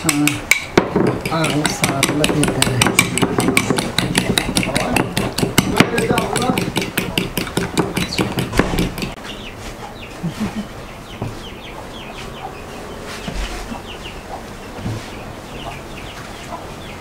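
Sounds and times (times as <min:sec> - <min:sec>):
fowl chirping and clucking: 0:09.0 - 0:17.0.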